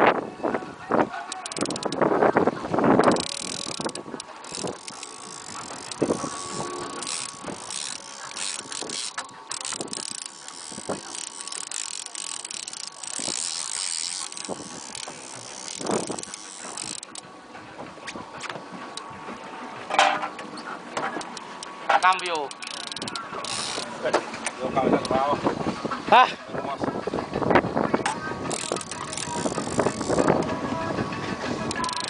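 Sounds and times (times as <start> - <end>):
fishing reel clicking: 1.3 - 2.0, 3.0 - 17.2, 21.2 - 23.9, 28.5 - 30.6, 31.6 - 32.0.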